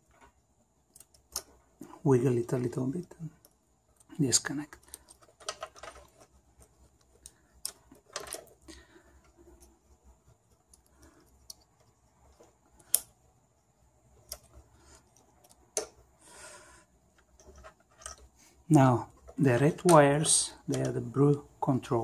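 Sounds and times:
clicks of wire connectors: 0:00.9 - 0:01.5.

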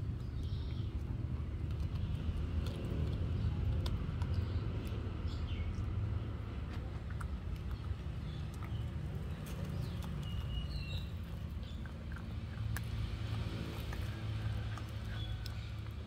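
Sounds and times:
puppy crunching a bone: 0:00.0 - 0:16.0.

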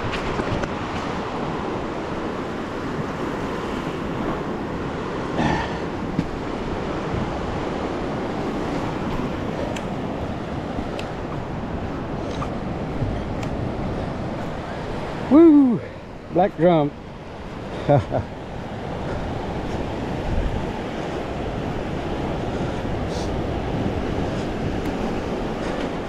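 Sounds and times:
ocean surf washing onto beach: 0:00.0 - 0:26.0
wind buffeting microphone: 0:00.0 - 0:26.0.

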